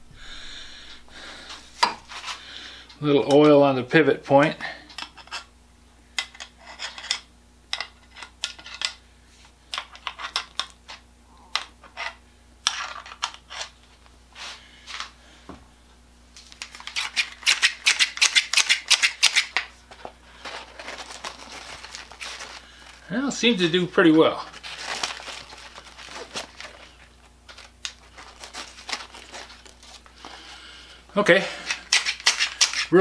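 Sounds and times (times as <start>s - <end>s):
shears clicking and scraping: 16.4s - 20.0s, 31.5s - 33.0s
shears snipping: 16.6s - 19.6s, 31.6s - 33.0s.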